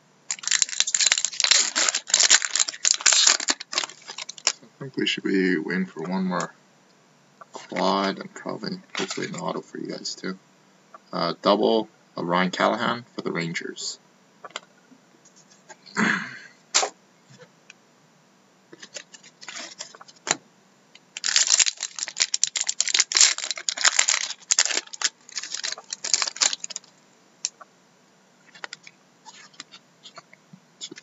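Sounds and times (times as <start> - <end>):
foil wrapper crinkling and tearing: 0.3 - 4.6, 18.8 - 20.0, 21.1 - 26.9, 28.5 - 30.2.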